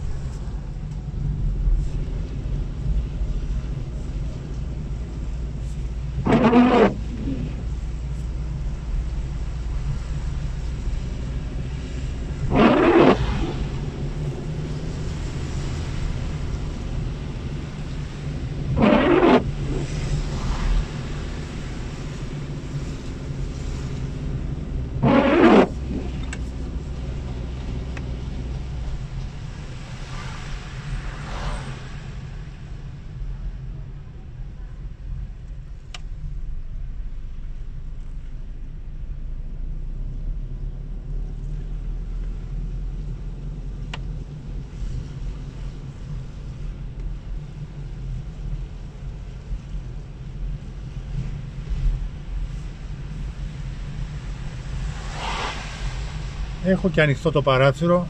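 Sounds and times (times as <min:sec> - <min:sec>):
car engine and tyres drone: 0:00.0 - 0:58.0
windshield wiper sweeping: 0:01.8 - 0:31.7.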